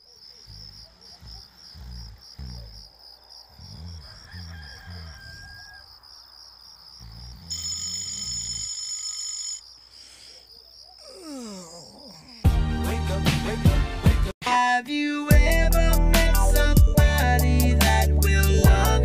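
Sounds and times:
crickets chirping: 0.0 - 12.6
rooster crowing: 3.9 - 6.1.

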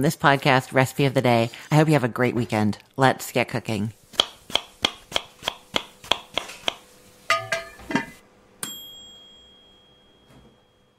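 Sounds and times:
bell-like ding: 8.6 - 10.9.

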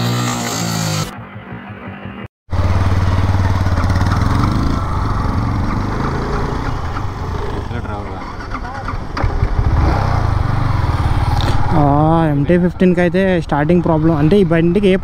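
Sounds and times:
motorcycle engine running: 1.1 - 12.4.

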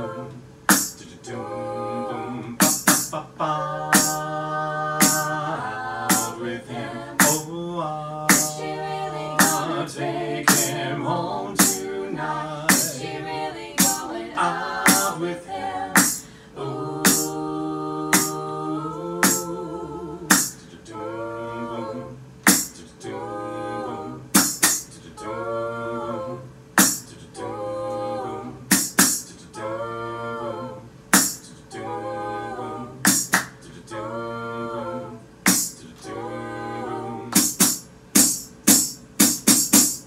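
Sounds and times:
a cappella group singing harmonies: 0.0 - 40.0
sharp percussive hits: 0.7 - 1.0, 2.6 - 3.2, 4.0 - 4.3, 5.0 - 5.4, 6.1 - 6.4, 7.2 - 7.4, 8.3 - 8.6, 9.4 - 9.7, 10.5 - 10.7, 11.6 - 11.9, 12.7 - 13.0, 13.8 - 14.1, 14.9 - 15.1, 16.0 - 16.3, 17.0 - 17.4, 18.1 - 18.4, 19.2 - 19.5, 20.3 - 20.6, 22.5 - 22.8, 24.4 - 24.9, 26.8 - 27.0, 28.7 - 29.3, 31.2 - 31.4, 33.1 - 33.5, 35.5 - 35.8, 37.3 - 40.0.

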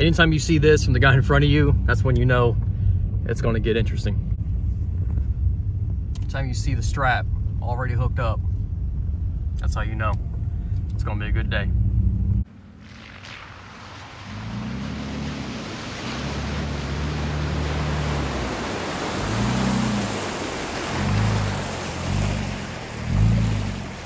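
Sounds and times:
truck engine revving: 10.1 - 24.0
water splashing and surging: 12.4 - 24.0.

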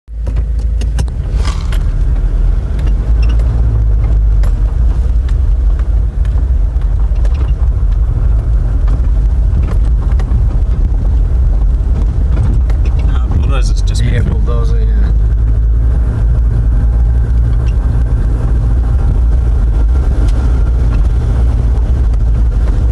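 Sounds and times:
engine and tyres rumbling: 0.1 - 22.9
clicks and rattles: 0.2 - 13.5.

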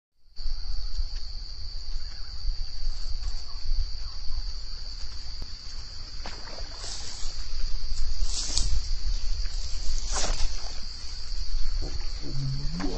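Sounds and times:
insects buzzing: 0.3 - 12.9
low wind rumble: 10.8 - 12.9.

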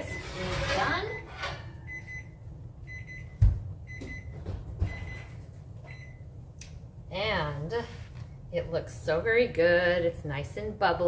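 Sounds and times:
oven beeper short high beeps: 0.0 - 6.3.

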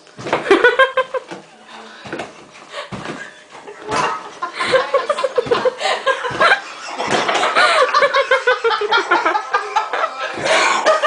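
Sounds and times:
sharp slaps or thumps: 2.1 - 3.3.

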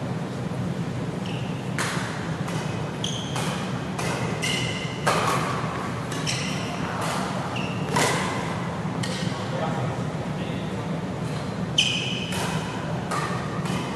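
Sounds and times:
shoes squeaking on court: 1.2 - 8.4, 11.3 - 12.6
rackets hitting shuttlecock: 1.7 - 9.3, 12.1 - 13.9.

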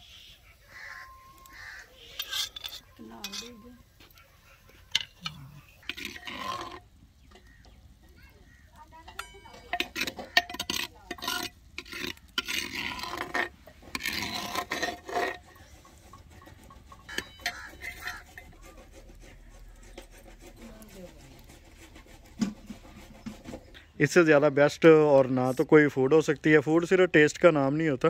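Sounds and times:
ladle scraping a bowl: 0.7 - 7.7, 8.4 - 24.0
metallic ring: 2.2 - 3.8, 9.1 - 11.5.

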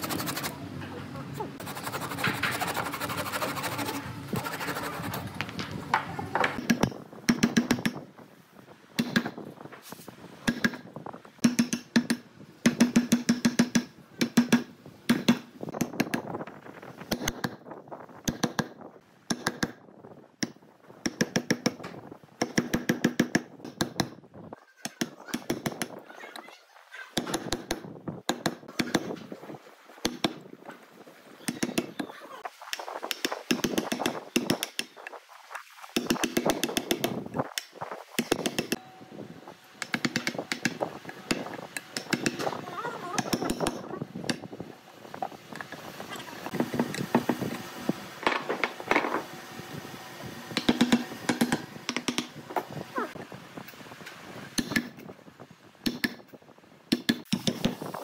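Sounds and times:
hand saw rasping through wood: 1.6 - 5.2.

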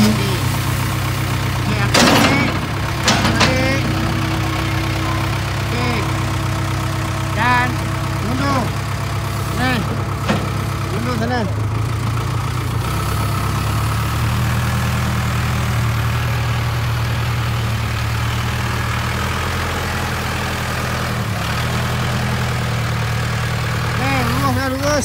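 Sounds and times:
diesel engine running at low speed: 0.0 - 25.0.

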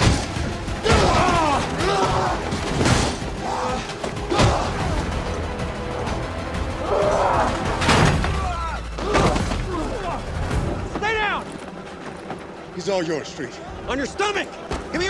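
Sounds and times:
dramatic background music: 0.0 - 15.0
men grunting and crying out: 0.6 - 5.3, 6.7 - 10.5.

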